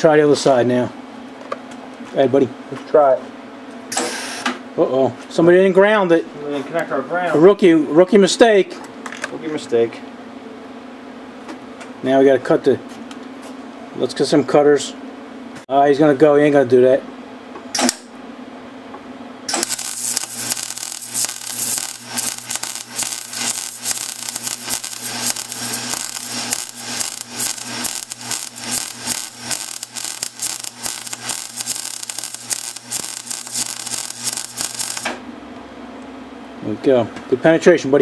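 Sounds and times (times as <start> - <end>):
low electrical hum: 0.0 - 38.0
welder arc crackling: 19.5 - 35.2.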